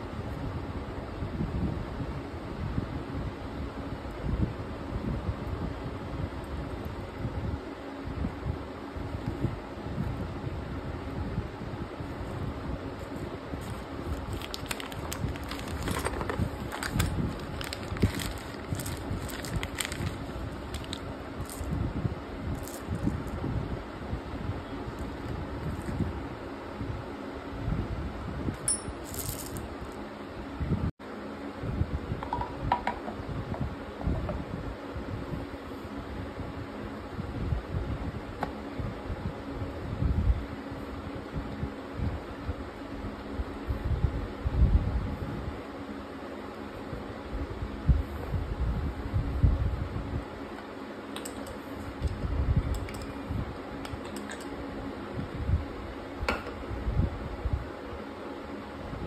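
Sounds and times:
metal parts clinking in a hand: 0:28.6 - 0:29.6
metal parts clatter: 0:28.9 - 0:29.6.

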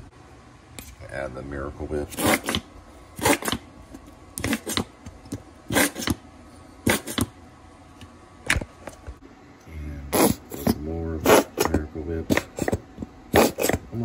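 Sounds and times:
squeeze bottle sputtering: 0:12.3 - 0:13.9.

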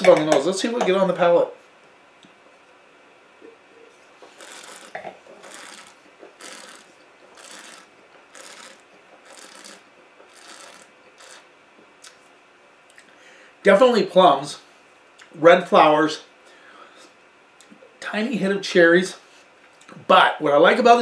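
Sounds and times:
person slurping wine: 0:04.4 - 0:11.4.

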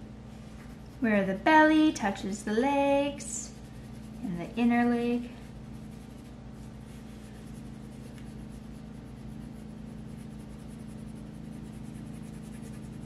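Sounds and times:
steady low hum: 0:00.0 - 0:13.0
pencil scratching on paper: 0:03.5 - 0:04.8, 0:05.5 - 0:13.0.

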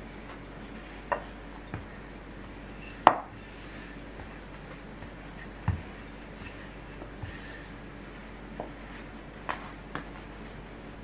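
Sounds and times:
dough shaped by hand: 0:00.0 - 0:11.0
rolling pin knocking on wooden board: 0:03.0 - 0:03.3, 0:05.0 - 0:07.4.

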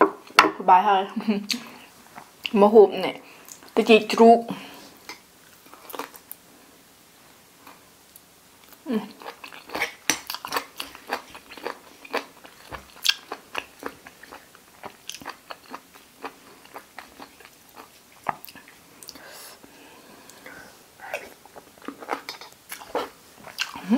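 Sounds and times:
chewing crunchy cartilage: 0:09.2 - 0:19.2, 0:21.1 - 0:23.9.

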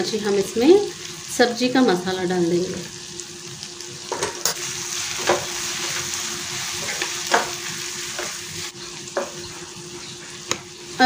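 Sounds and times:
vegetables sizzling in a pan: 0:00.0 - 0:11.0
spatula scraping a pan: 0:05.2 - 0:08.4.

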